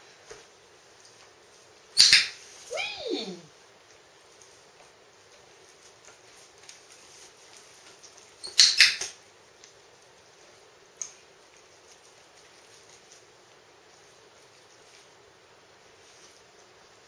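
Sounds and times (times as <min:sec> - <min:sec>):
dog licking and eating treats: 0:09.5 - 0:16.8.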